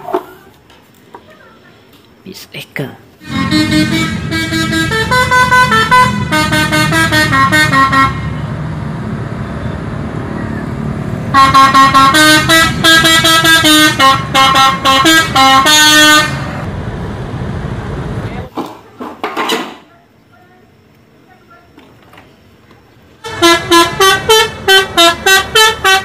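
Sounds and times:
bus engine rumble: 0.0 - 19.2, 19.8 - 26.0
musical air horns: 3.2 - 8.4, 11.3 - 16.7, 23.2 - 26.0.

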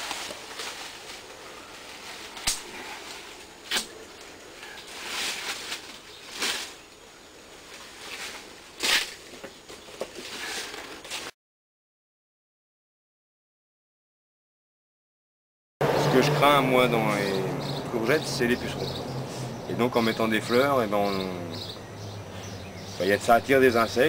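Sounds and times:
leaves rustling: 0.0 - 11.3.

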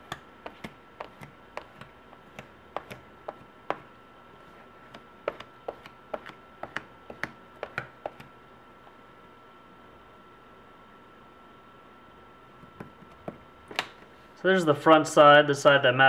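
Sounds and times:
squeegee clicks and taps: 0.0 - 3.8, 4.9 - 8.3.

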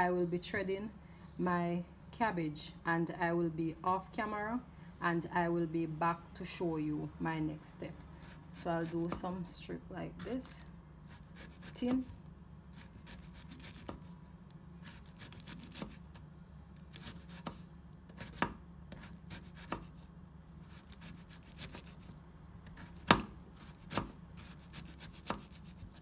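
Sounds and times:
knife slicing cabbage on board: 8.2 - 9.3, 10.2 - 14.1, 14.8 - 16.1, 16.9 - 20.0, 20.6 - 22.1, 22.7 - 26.0.

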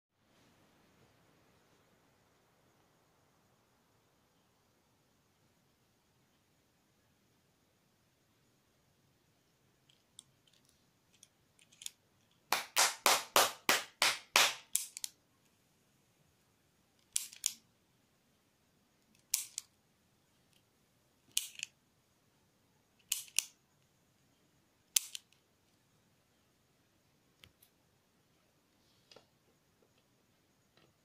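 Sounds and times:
retractable pen sliders clicking: 14.7 - 15.2, 17.0 - 17.6, 19.2 - 19.7, 21.3 - 21.8, 23.0 - 23.5, 24.9 - 25.4.

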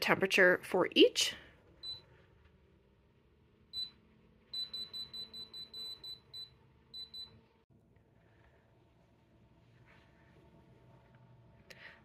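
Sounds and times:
control panel beeps: 3.8 - 4.0, 4.6 - 7.4.

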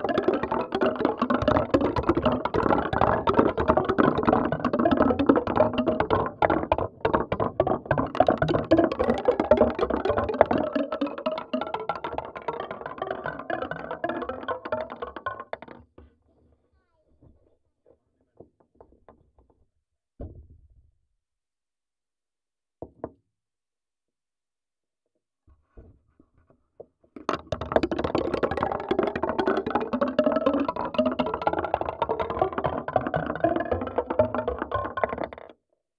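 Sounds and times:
marbles clattering: 0.0 - 15.8, 27.2 - 35.5.

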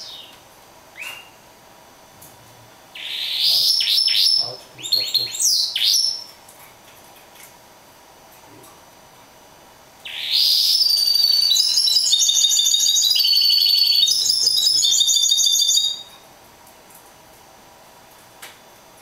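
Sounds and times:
finch singing trills and chirps: 0.0 - 0.4, 3.0 - 6.3, 10.0 - 16.1.

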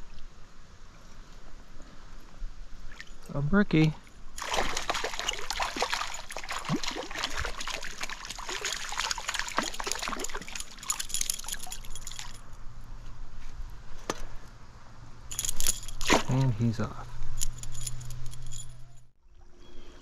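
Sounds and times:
water splashing: 4.4 - 12.4, 15.9 - 16.5.

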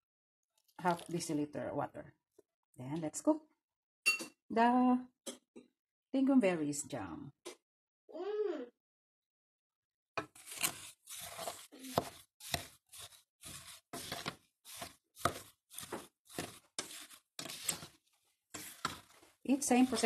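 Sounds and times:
spatula scraping sugar in pot: 10.2 - 20.0.

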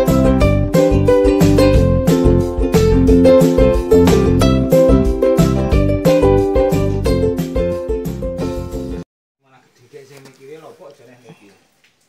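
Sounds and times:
plucked string music: 0.0 - 9.0.

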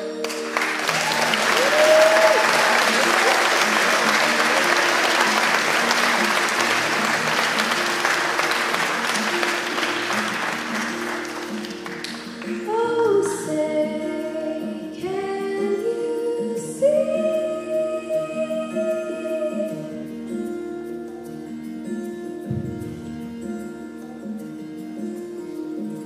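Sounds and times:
audience applause: 0.2 - 12.6
girl singing into microphone: 12.6 - 20.2.

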